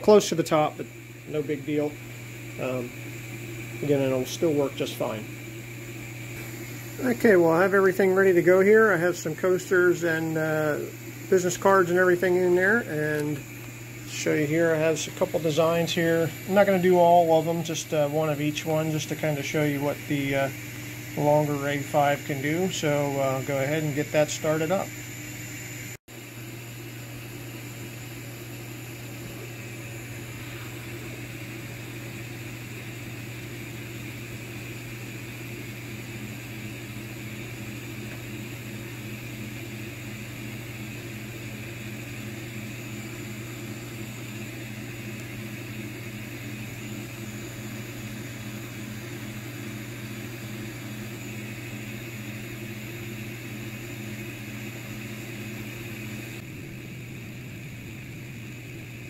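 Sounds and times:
laser engraver humming: 0:00.0 - 0:59.0
regular pulsing: 0:00.2 - 0:25.5.

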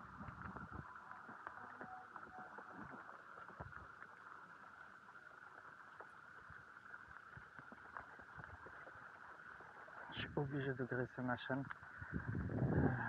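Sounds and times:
light ticks and taps: 0:11.6 - 0:11.9.

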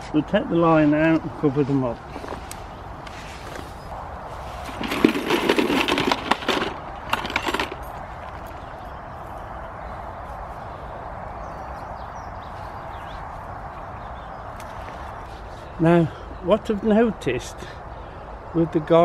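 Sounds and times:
steady background noise: 0:00.0 - 0:19.0
rustling handling noise: 0:01.6 - 0:09.4.

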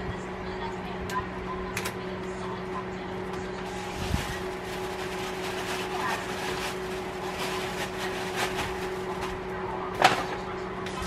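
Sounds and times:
low electrical hum: 0:00.0 - 0:11.0
tissue paper rustling: 0:03.6 - 0:09.4.

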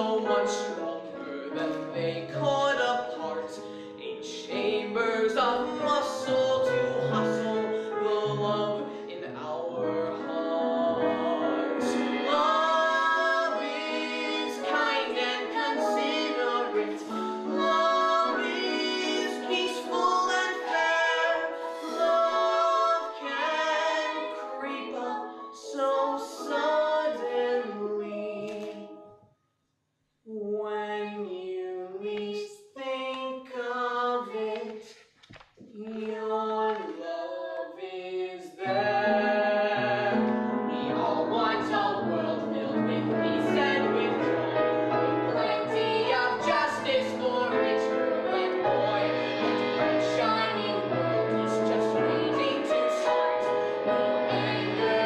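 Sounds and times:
instrumental accompaniment: 0:38.7 - 0:55.0.

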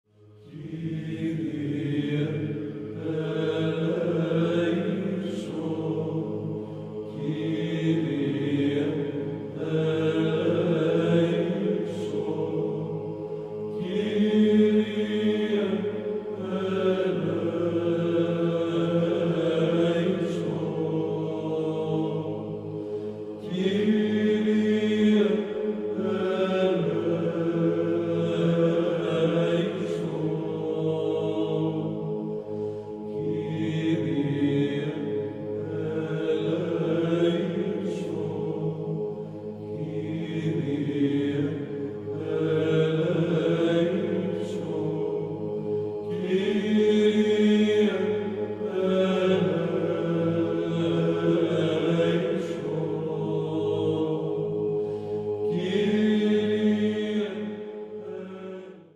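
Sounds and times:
low vocal drone: 0:00.1 - 0:58.9.

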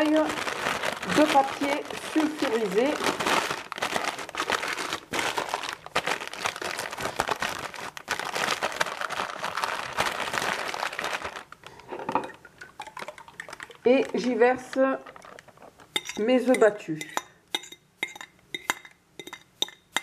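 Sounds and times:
parchment paper crinkling: 0:00.0 - 0:11.8.

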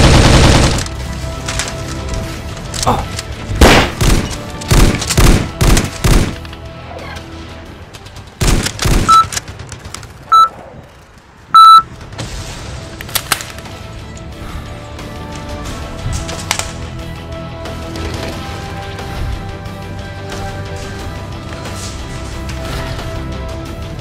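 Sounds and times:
video game gunfire: 0:00.0 - 0:00.9, 0:03.6 - 0:06.4, 0:08.4 - 0:10.5
background music: 0:00.0 - 0:10.5, 0:11.6 - 0:24.0
short electronic beeps: 0:09.1 - 0:09.3, 0:10.3 - 0:10.5, 0:11.5 - 0:11.9.

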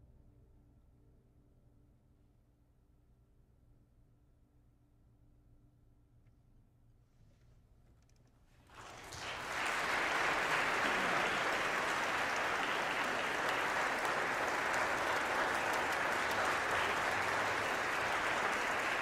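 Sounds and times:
audience applauding: 0:08.7 - 0:19.0.

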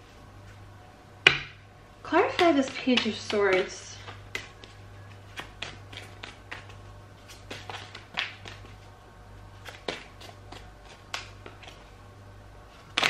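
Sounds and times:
steady low hum: 0:00.0 - 0:13.0
cards being shuffled: 0:02.4 - 0:08.9, 0:09.5 - 0:12.0, 0:12.7 - 0:13.0.

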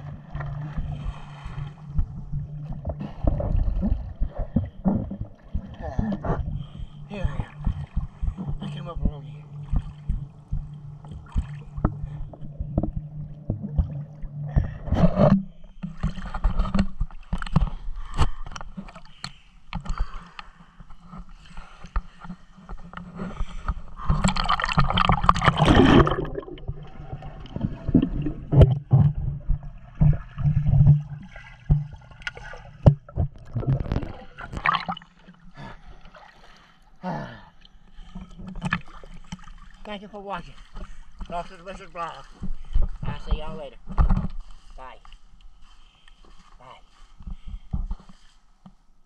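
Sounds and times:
underwater gurgling rush: 0:00.0 - 0:08.7, 0:23.8 - 0:35.4
pool water splashing: 0:23.6 - 0:35.5.

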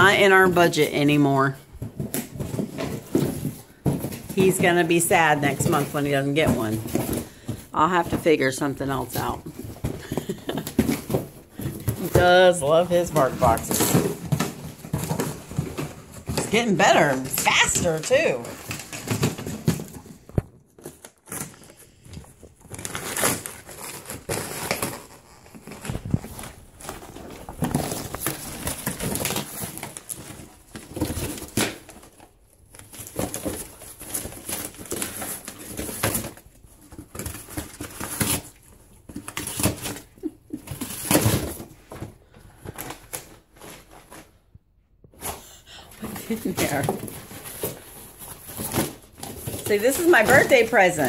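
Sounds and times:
dog ripping cardboard: 0:13.2 - 0:42.0.

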